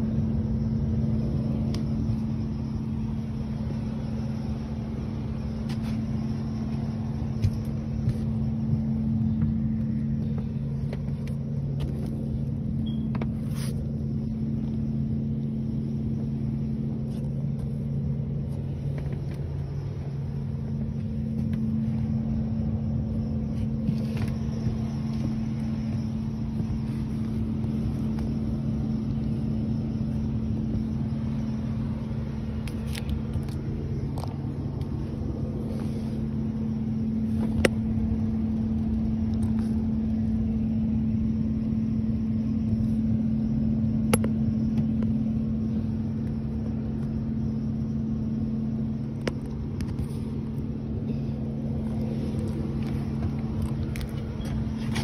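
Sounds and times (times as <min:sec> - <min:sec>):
air handler humming: 0:00.0 - 0:55.0
handling clicks and rustles: 0:01.2 - 0:40.3, 0:48.9 - 0:55.0.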